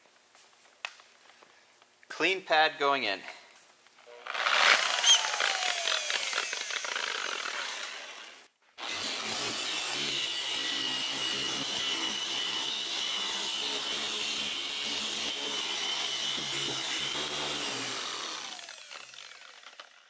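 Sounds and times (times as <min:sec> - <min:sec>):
polisher motor whine: 0:04.2 - 0:19.9.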